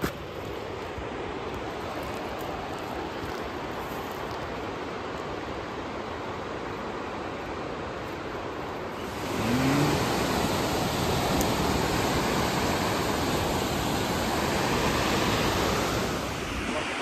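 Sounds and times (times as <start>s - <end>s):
steady rushing noise: 8.5s - 17.0s.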